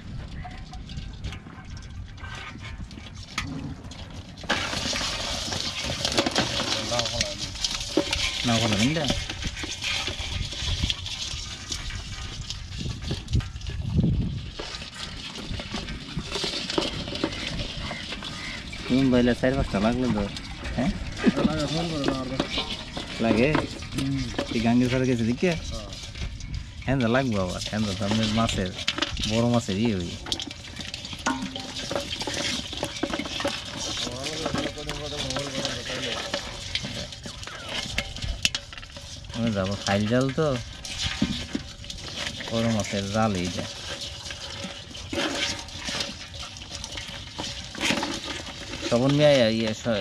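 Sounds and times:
crabs scrabbling in a basin: 0.0s - 50.0s
hand sorting through catch: 2.3s - 13.8s, 14.4s - 50.0s
water splashing and dripping: 2.8s - 50.0s.

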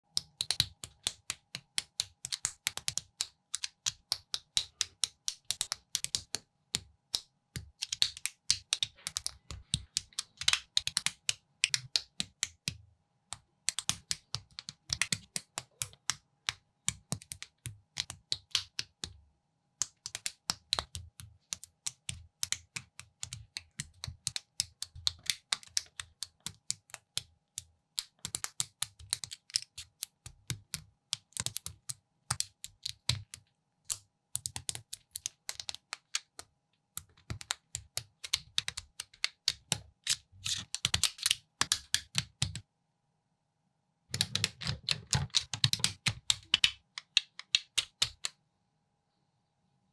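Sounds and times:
plastic building pieces clicking: 37.0s - 42.6s, 44.1s - 48.3s.

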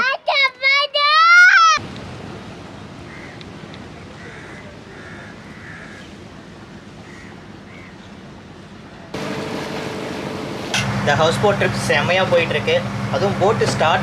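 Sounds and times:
crows cawing: 3.1s - 3.4s, 4.2s - 6.1s, 7.0s - 8.0s.

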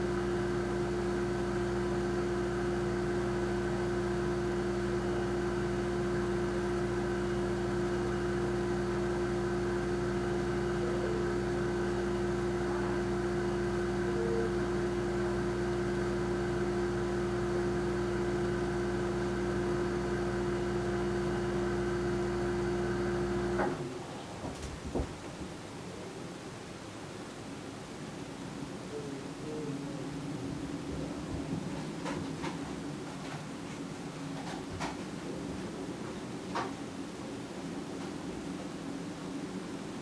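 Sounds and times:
refrigerator humming: 0.0s - 25.6s.

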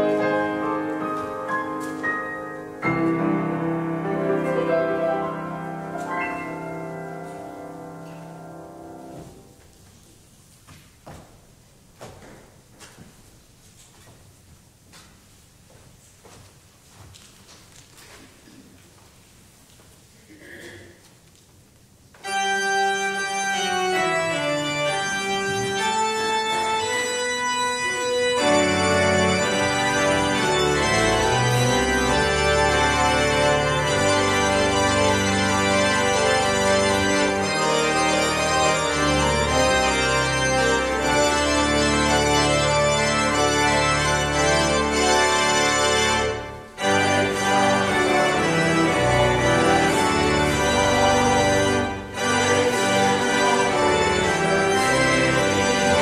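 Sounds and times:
church organ chords: 0.0s - 9.6s, 22.2s - 56.0s.

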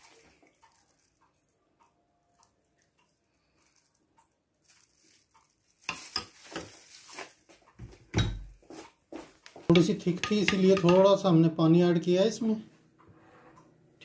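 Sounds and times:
faint regular ticks: 0.2s - 5.6s.

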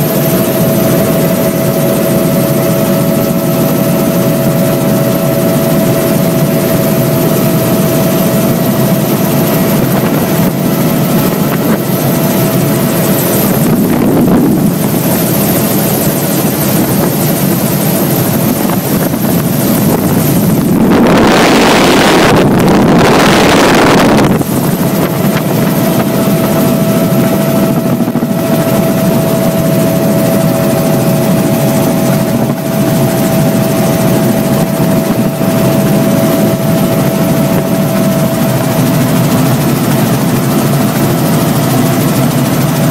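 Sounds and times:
helicopter engine and rotor noise: 0.0s - 42.9s
steady whine: 0.0s - 42.9s
loud rushing noise: 12.8s - 16.2s, 19.0s - 39.1s.

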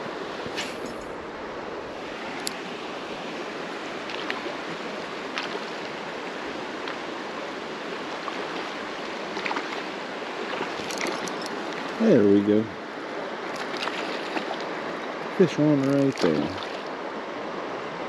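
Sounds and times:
creek water running: 0.0s - 18.0s.

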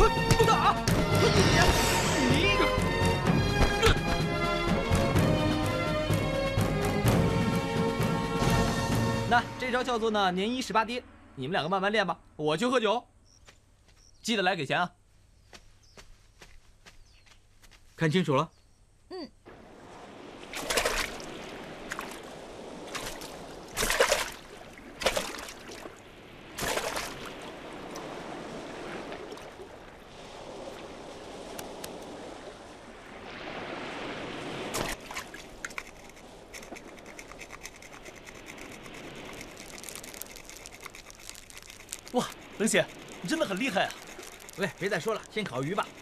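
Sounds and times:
shallow water sloshing and splashing: 19.5s - 46.0s
sharp water splashes: 19.5s - 46.0s.

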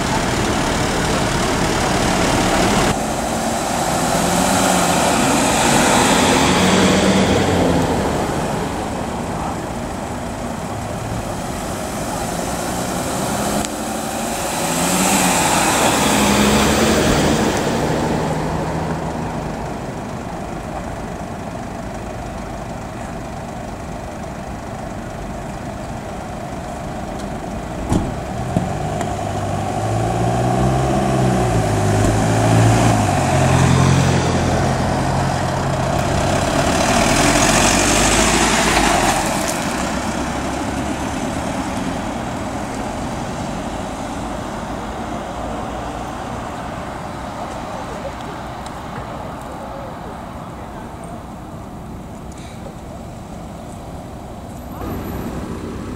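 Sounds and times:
engine revving: 0.0s - 19.9s, 28.2s - 46.4s, 54.6s - 55.9s
van engines idling and driving off: 0.0s - 55.9s
vehicles passing close: 0.0s - 55.9s.

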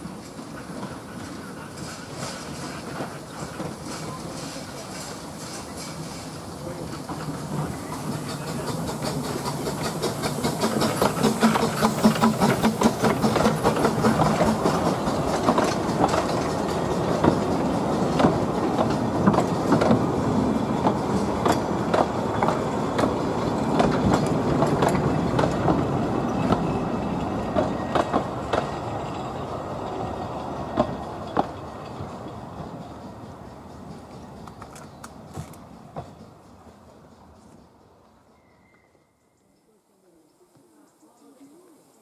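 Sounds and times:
steam locomotive exhaust beats: 0.0s - 39.1s
train wheels clicking on rail joints: 0.0s - 39.1s.

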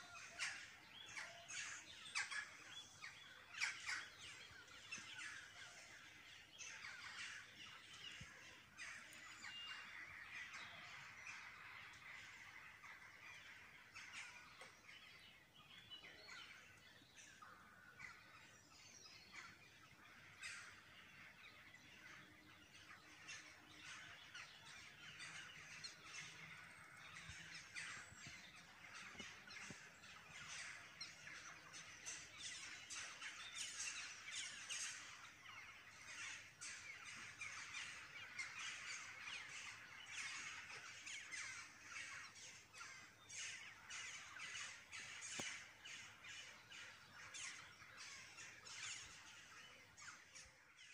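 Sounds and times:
birds twittering and chirping: 0.0s - 50.9s.

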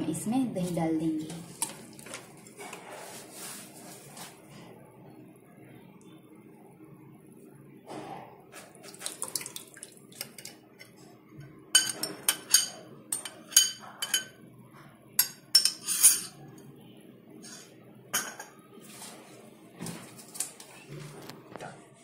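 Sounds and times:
spoon clinking on glass bowl: 11.8s - 14.4s, 15.2s - 16.4s.

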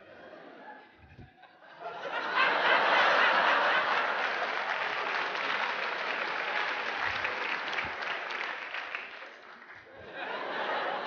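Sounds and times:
audience laughter: 0.0s - 9.0s, 9.6s - 11.0s
audience applauding: 2.2s - 11.0s.

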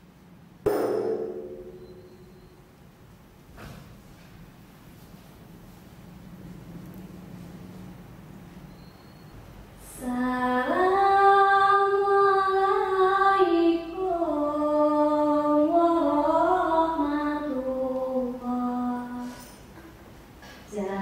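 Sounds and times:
person singing slow chant: 9.8s - 19.5s.

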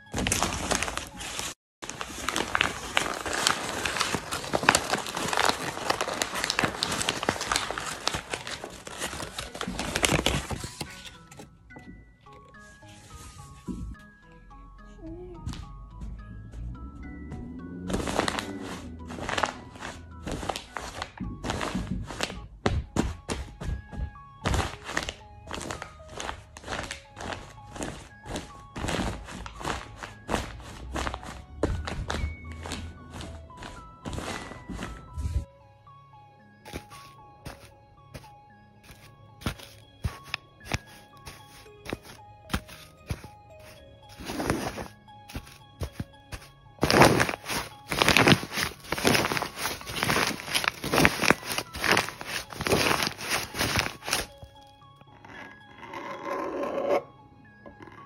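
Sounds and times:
paper crinkling: 0.0s - 11.5s, 17.9s - 22.4s, 24.4s - 35.5s, 36.7s - 54.6s.

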